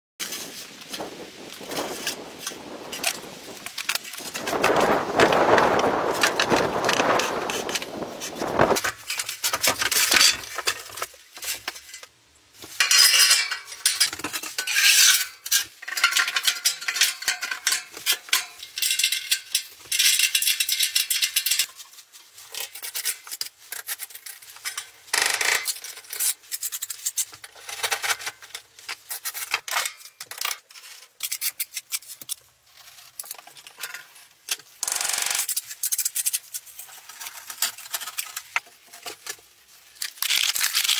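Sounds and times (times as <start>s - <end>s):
metal clinks knocks and scrapes: 8.7s - 21.9s.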